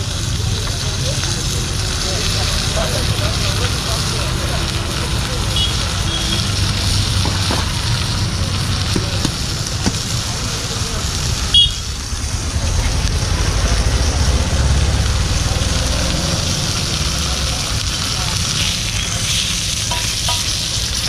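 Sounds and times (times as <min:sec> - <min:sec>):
fire burning: 0:00.0 - 0:21.0
seafood sizzling on a griddle: 0:00.0 - 0:21.0
street traffic rumble: 0:00.0 - 0:21.0.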